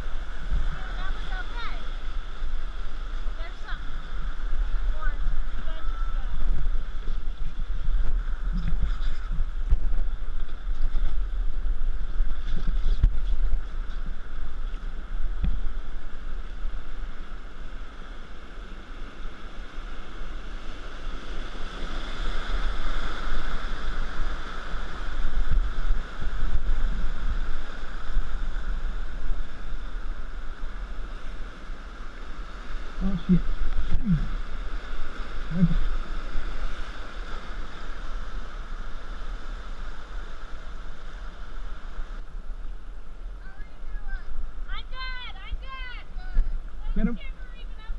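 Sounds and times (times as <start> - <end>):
wind buffeting microphone: 0.0 - 17.8.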